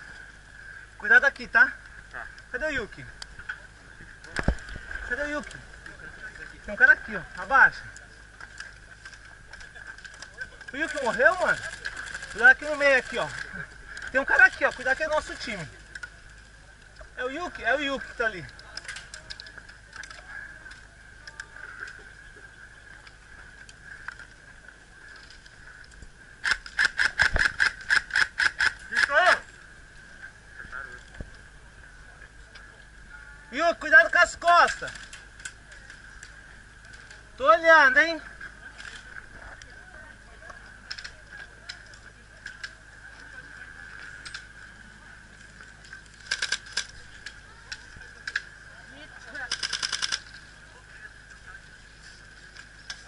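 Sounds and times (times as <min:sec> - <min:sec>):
steady high hum: 0:00.0 - 0:53.0
faint clicks: 0:07.3 - 0:17.2, 0:18.4 - 0:29.2, 0:34.6 - 0:37.4, 0:40.4 - 0:50.6, 0:51.2 - 0:53.0
airsoft gun cracks: 0:26.4 - 0:29.1.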